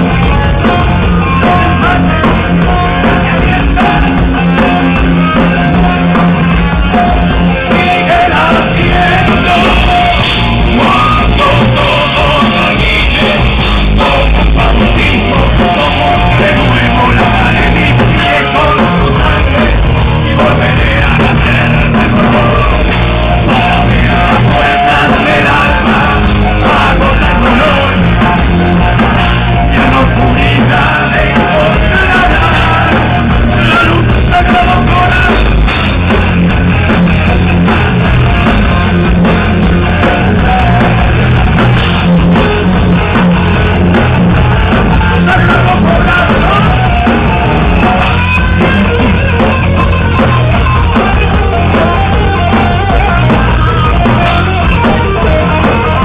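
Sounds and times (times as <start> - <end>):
electric guitar: 0.0 - 56.0
person singing: 7.0 - 35.7, 43.8 - 49.5.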